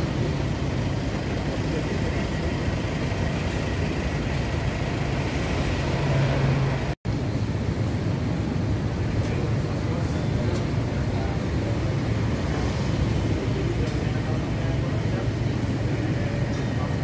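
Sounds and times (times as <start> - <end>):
vehicle engines humming: 0.0 - 17.0.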